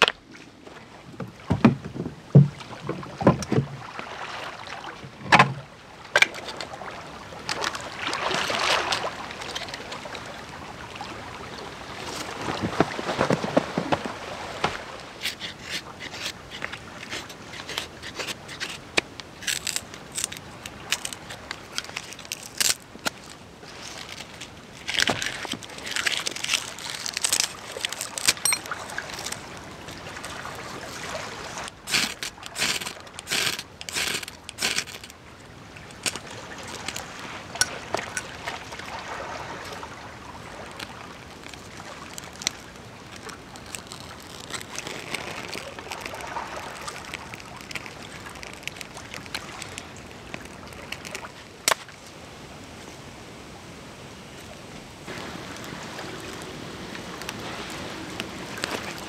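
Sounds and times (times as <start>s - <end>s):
wooden sticks clacking together: 31.9s - 35.1s.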